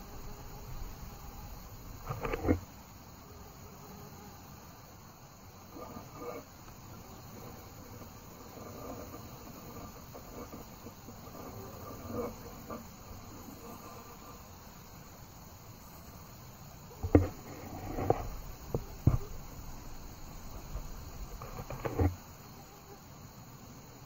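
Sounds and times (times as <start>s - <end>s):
crickets chirring: 0.0s - 24.0s
sharp knocks and thumps: 17.0s - 19.5s.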